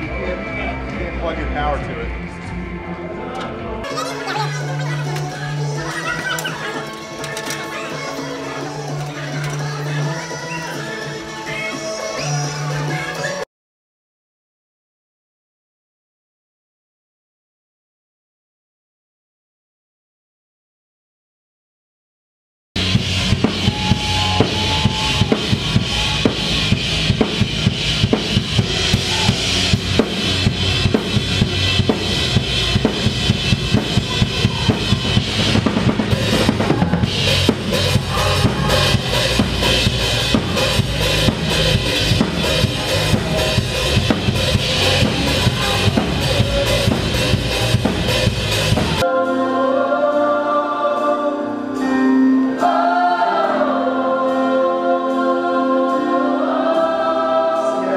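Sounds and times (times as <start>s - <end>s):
rock band playing loudly: 0.0s - 13.4s, 22.8s - 49.3s
voices singing long notes: 0.0s - 13.4s, 22.8s - 57.9s
drum kit beat: 22.8s - 49.0s.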